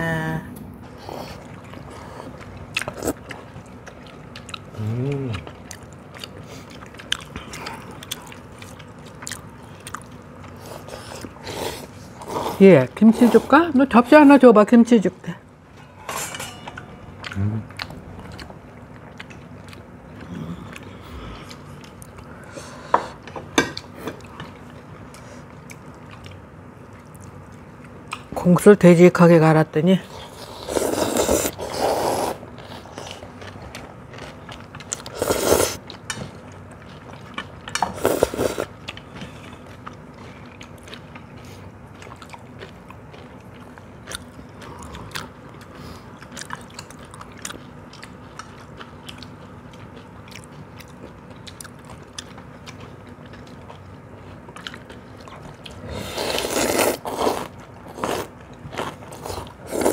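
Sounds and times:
quiet chewing: 1.0 - 12.4, 17.1 - 28.4, 30.2 - 59.9
people slurping noodles: 30.3 - 32.4, 35.1 - 35.8, 37.9 - 38.7, 55.8 - 58.3.

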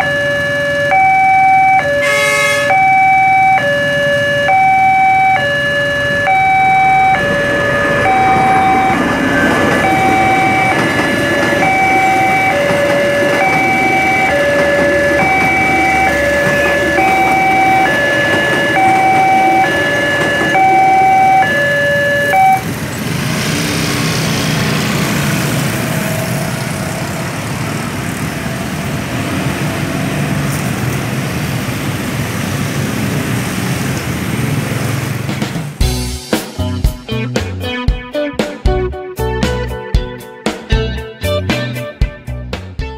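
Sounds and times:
two-tone warning chime: 0.0 - 22.7
passing train rumble: 0.0 - 36.8
motorcycles pulling away: 5.4 - 35.9.

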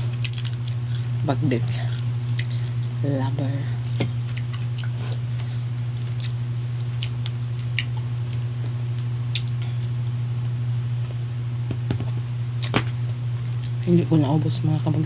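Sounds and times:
chewing and eating noises: 0.0 - 11.2, 13.4 - 13.9
low hum: 0.0 - 15.0.

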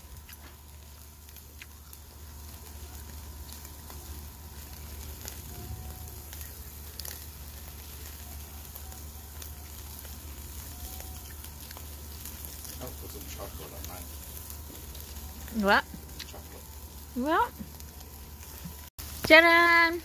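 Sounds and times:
crackles and pops: 0.0 - 20.0
steaks sizzling on charcoal grill: 0.0 - 20.0.

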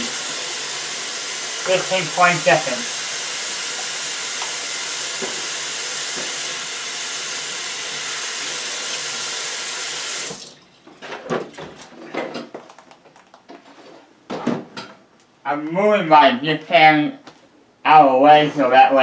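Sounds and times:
tap water running: 0.0 - 11.7.

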